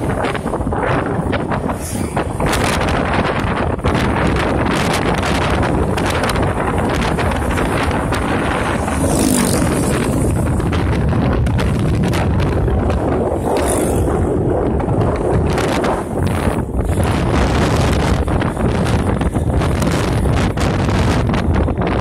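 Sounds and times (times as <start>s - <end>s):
road noise: 0.0s - 22.0s
wind buffeting microphone: 0.0s - 22.0s
motorcycle engine running: 2.6s - 22.0s.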